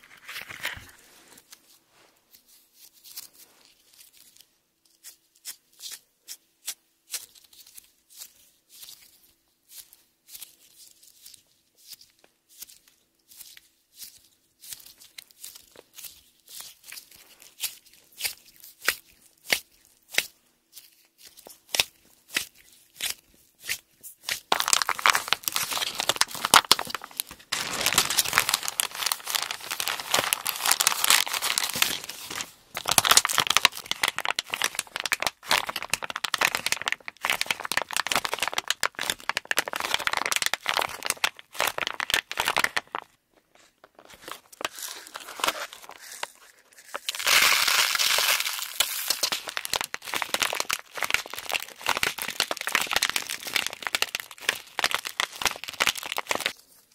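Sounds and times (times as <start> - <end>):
plastic bag crinkling: 24.4 - 43.2, 43.8 - 56.9.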